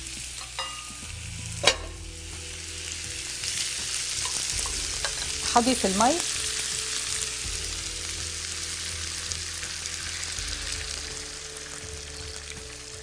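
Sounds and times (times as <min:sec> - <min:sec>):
food sizzling in frying pan: 0:00.0 - 0:13.0.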